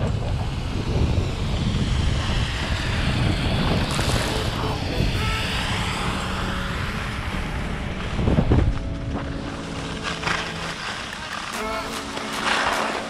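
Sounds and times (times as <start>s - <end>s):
wind rushing over microphone: 0.0s - 13.0s
ski edges scraping snow: 3.8s - 6.1s, 9.2s - 13.0s.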